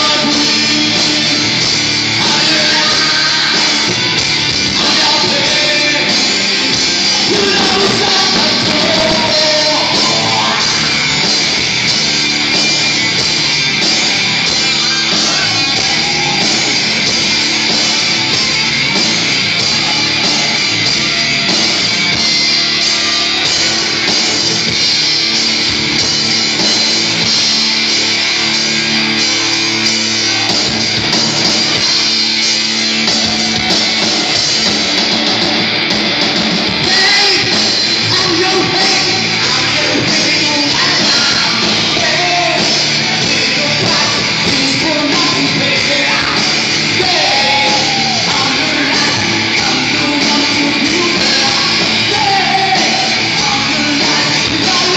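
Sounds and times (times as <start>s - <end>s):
live rock band with singing: 0.0s - 54.9s.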